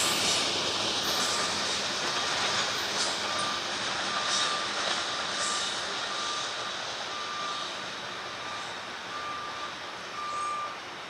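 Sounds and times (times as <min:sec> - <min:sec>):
steady rushing noise: 0:00.0 - 0:07.2
short electronic beeps: 0:08.4 - 0:10.8.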